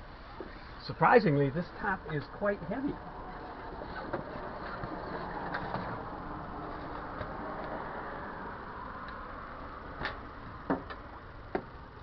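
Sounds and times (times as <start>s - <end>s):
fabric rustling and scraping: 3.3s - 7.1s.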